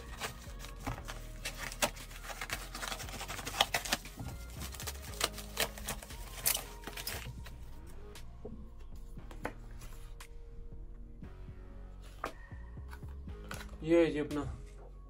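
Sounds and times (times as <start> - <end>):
paper mailer tearing: 0.0 - 7.4
packaging crinkling and rustling: 0.0 - 7.5.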